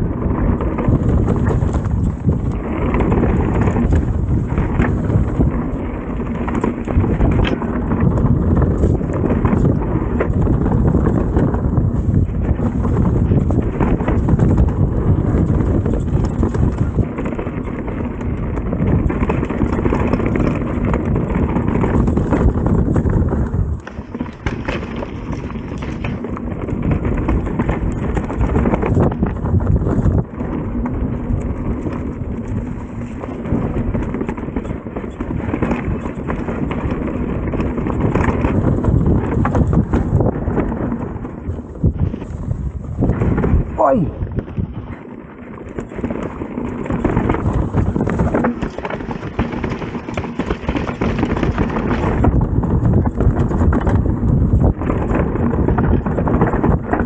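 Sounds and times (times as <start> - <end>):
bike rattling with sharp knocks: 0.0 - 57.0
bike tyres rumbling on rocks: 0.0 - 57.0.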